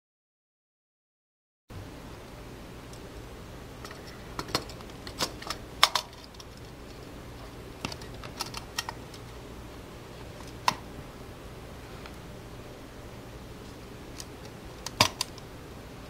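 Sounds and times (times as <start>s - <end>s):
plastic handling clicks and knocks: 3.8s - 7.0s, 7.8s - 9.2s.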